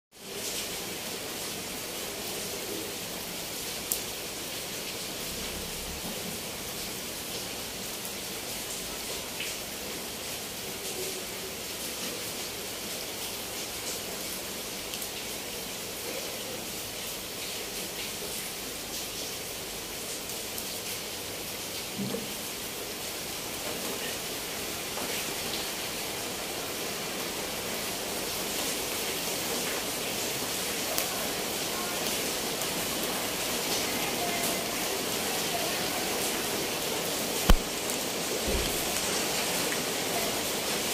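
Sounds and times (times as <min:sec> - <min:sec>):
rain on a corrugated roof: 0:00.1 - 0:40.9
sharp tap: 0:37.5 - 0:37.7.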